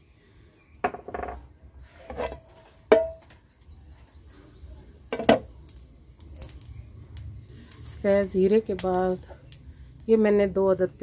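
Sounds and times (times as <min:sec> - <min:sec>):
frying pan clinks and knocks: 0:02.9 - 0:03.4, 0:05.1 - 0:05.5.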